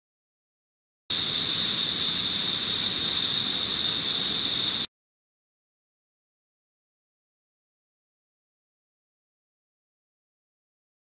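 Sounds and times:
shrill insect chorus: 0:01.1 - 0:04.9.

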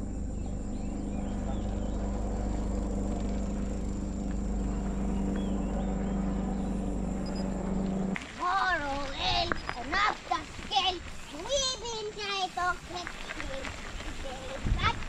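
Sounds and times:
thin high whine: 0:00.0 - 0:08.2
low hum: 0:00.0 - 0:09.9
bike tyres rolling on dirt: 0:00.1 - 0:15.0
faint bird chirps: 0:05.0 - 0:07.6, 0:09.5 - 0:09.9
wind noise: 0:12.7 - 0:15.0.

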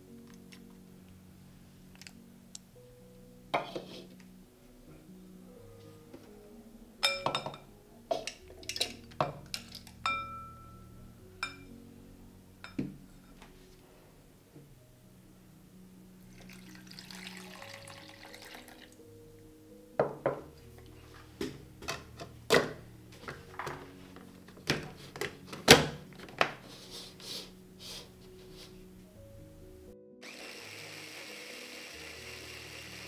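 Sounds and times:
soft background music: 0:00.0 - 0:33.0
running water: 0:16.3 - 0:19.0
motor whirring: 0:30.2 - 0:33.0.

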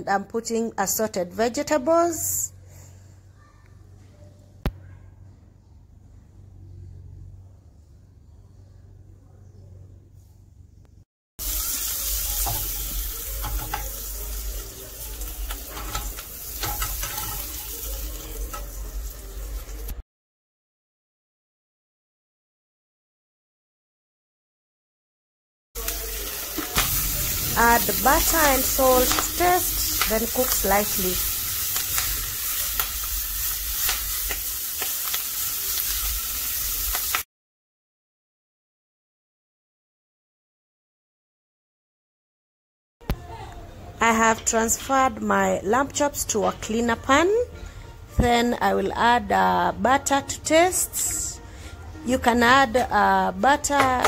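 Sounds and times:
vegetables sizzling in a frying pan: 0:11.4 - 0:20.0, 0:25.8 - 0:37.3
spatula scraping a pan: 0:15.4 - 0:18.7.

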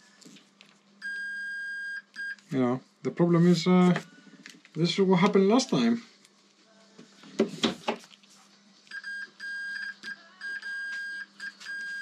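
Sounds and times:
multimeter high beep: 0:08.9 - 0:12.0.

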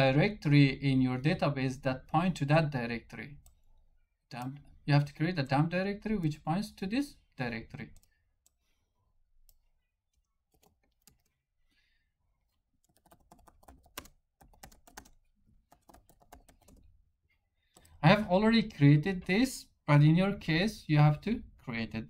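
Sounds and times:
keyboard typing clicks: 0:12.9 - 0:16.9.

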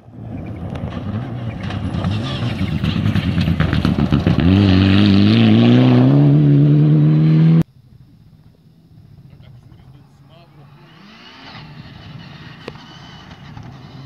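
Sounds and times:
rally car engine: 0:00.0 - 0:07.6, 0:09.9 - 0:14.0
tyres on gravel: 0:00.1 - 0:04.7.

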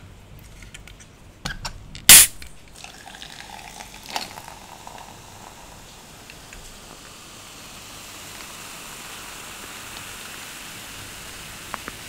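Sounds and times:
can tab clicks: 0:01.5 - 0:02.6
can opening pop and hiss: 0:02.0 - 0:02.6, 0:04.0 - 0:05.2, 0:06.2 - 0:10.9, 0:11.6 - 0:12.0
cola pouring and fizzing: 0:02.1 - 0:12.0.

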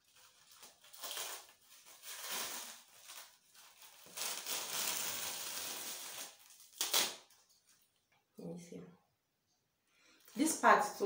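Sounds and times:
plastic and paper rustling: 0:00.0 - 0:08.0.

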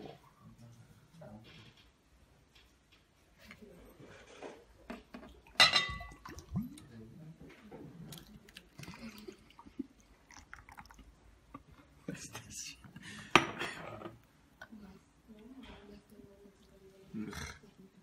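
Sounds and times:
juice glugging and splashing: 0:05.3 - 0:07.0, 0:08.0 - 0:11.7
glass clinking on glass: 0:05.6 - 0:06.2.

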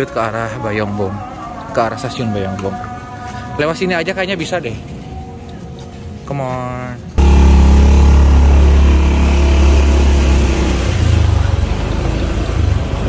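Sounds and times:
motorcycle engine pulling away: 0:07.2 - 0:13.0.

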